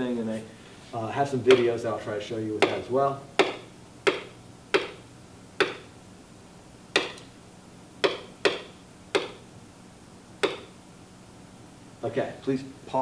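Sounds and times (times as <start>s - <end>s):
taps on whiteboard surface: 3.4s - 5.0s, 5.6s - 5.9s, 7.0s - 7.2s, 8.0s - 9.4s, 10.4s - 10.7s.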